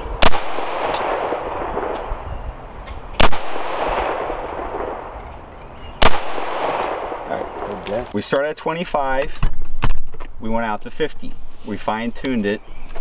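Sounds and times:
rifle shots with echo: 0:00.2 - 0:02.1, 0:03.2 - 0:05.2, 0:06.0 - 0:07.8.

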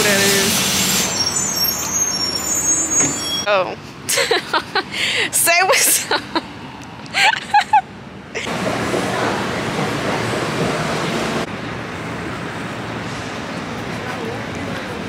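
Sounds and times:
subway station rushing noise: 0:00.0 - 0:03.6, 0:07.9 - 0:15.0
city street traffic hum: 0:00.0 - 0:15.0.

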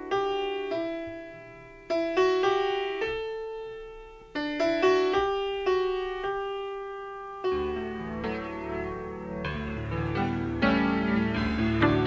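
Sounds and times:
slow piano-like melody: 0:00.0 - 0:12.0.

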